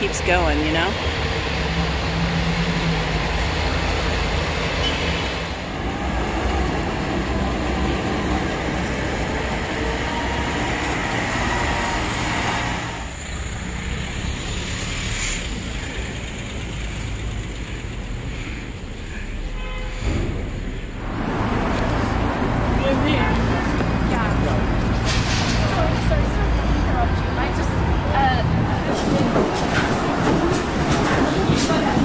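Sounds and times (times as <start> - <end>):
rumbling vehicle noise: 0.0 - 32.0.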